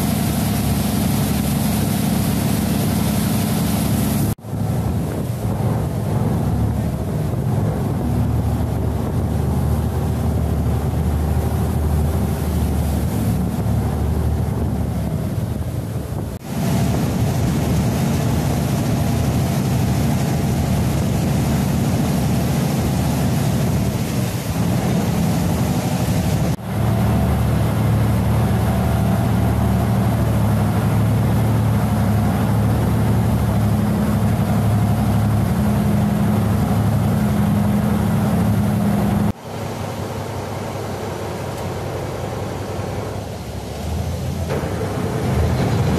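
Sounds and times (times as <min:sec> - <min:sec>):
wind on microphone: 0:00.0 - 0:39.4
boat diesel engine droning: 0:00.0 - 0:45.9
water rushing from wake: 0:00.0 - 0:45.9.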